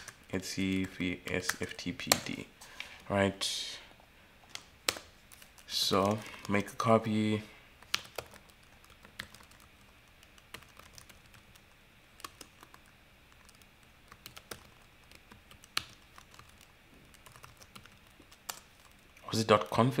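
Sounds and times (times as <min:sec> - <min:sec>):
keyboard typing: 0:00.0 - 0:02.3, 0:07.8 - 0:19.0.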